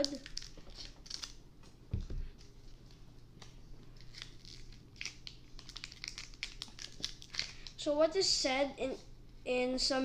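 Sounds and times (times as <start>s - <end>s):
foil wrapper crinkling: 0.0s - 1.4s, 4.0s - 7.8s.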